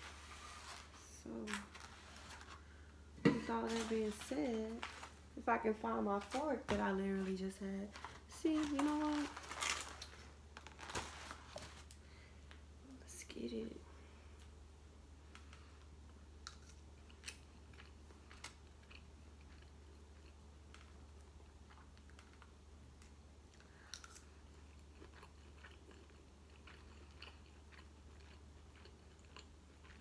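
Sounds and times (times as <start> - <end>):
low steady hum: 0.0 - 30.0
quiet chewing: 15.3 - 30.0.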